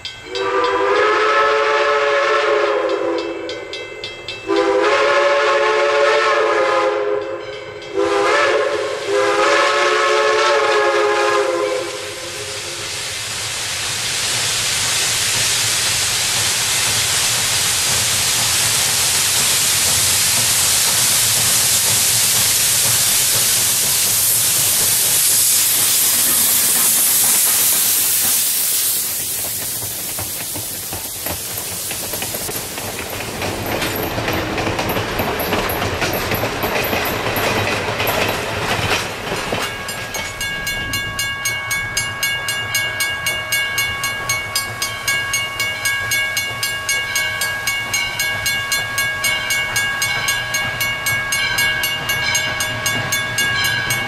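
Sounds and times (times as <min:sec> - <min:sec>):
steam locomotive whistle: 0:00.0 - 0:03.8, 0:04.4 - 0:13.2
train coaches rolling by: 0:00.0 - 0:54.0
loud steam hiss: 0:08.0 - 0:41.0.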